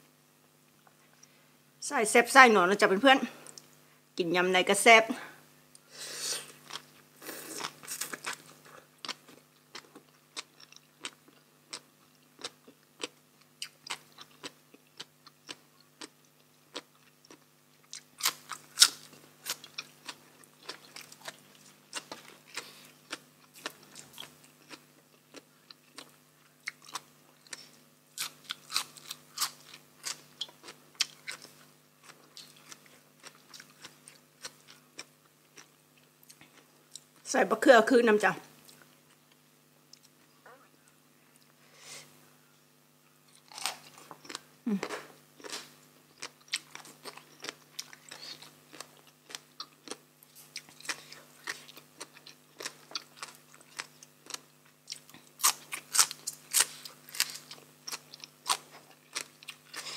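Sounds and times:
close chewing and crunching: 6.5s - 37.2s, 43.3s - 59.9s.

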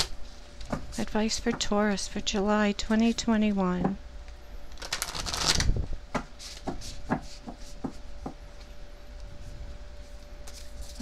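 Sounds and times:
cards being shuffled: 4.8s - 5.7s.

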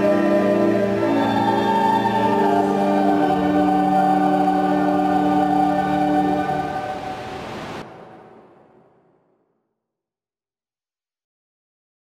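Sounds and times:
choir holding a chord: 0.0s - 8.8s.

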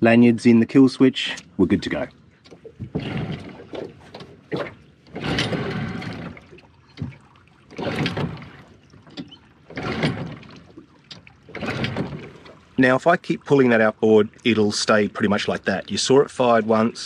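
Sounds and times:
outboard engine turning over: 1.4s - 13.4s
recoil starter pulls: 2.4s - 12.8s.

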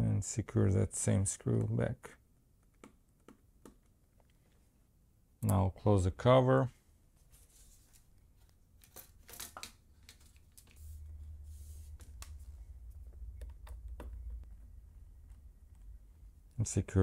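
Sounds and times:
low handling rumble: 10.8s - 17.0s.

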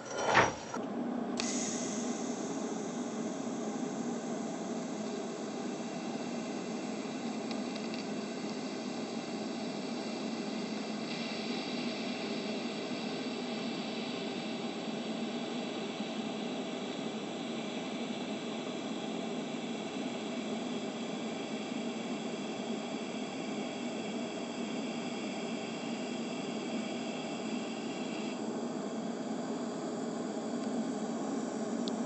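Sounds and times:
welding arc hissing: 1.4s - 16.4s, 22.3s - 28.4s.

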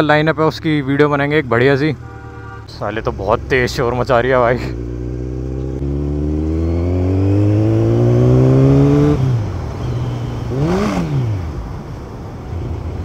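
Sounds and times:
motorcycle engine revving: 2.9s - 11.6s.

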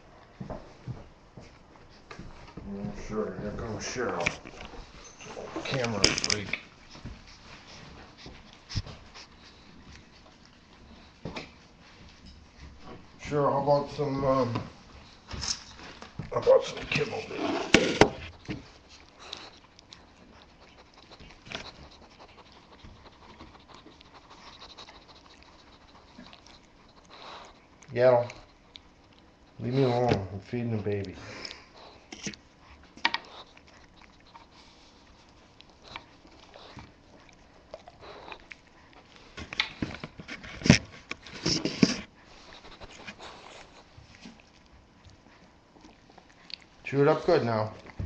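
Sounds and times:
puppy mouthing kibble: 13.6s - 48.0s.

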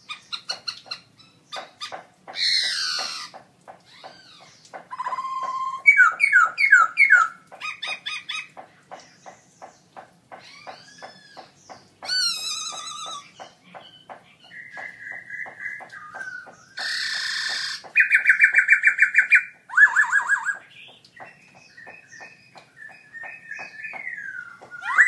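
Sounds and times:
bird singing whistled song: 4.9s - 7.3s, 12.1s - 17.0s, 18.0s - 25.0s.

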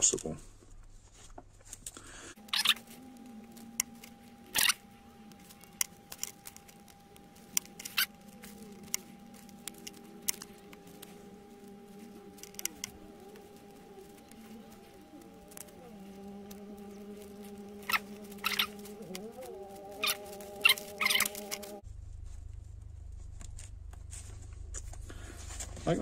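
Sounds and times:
steady low hum: 1.8s - 26.0s
metal pick clicking and scratching: 2.4s - 21.8s.

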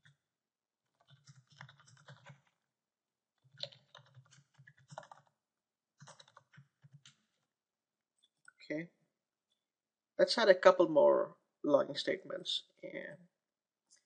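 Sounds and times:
faint typing on keyboard: 0.9s - 2.6s, 3.4s - 5.4s, 6.0s - 7.5s.

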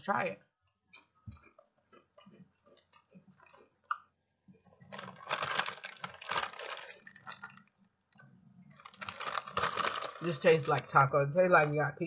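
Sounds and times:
chewing crunchy chips: 0.6s - 10.9s
chip bag crinkling: 4.7s - 7.8s, 8.7s - 11.8s.

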